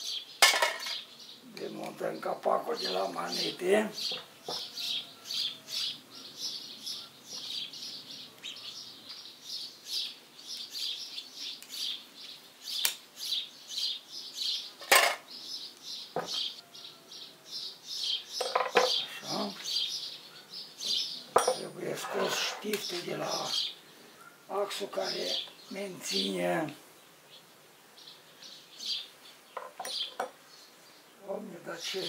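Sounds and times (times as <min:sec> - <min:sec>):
metal tools clinking on iron: 0:21.4 - 0:22.6
high chirping: 0:27.3 - 0:30.8.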